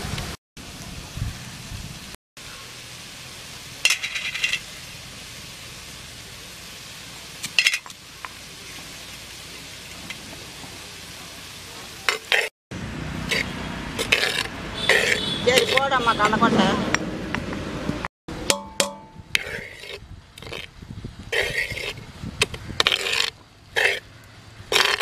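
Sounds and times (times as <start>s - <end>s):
steady hiss: 0.0s - 12.5s
ladle clinking against clay pot: 18.5s - 19.6s.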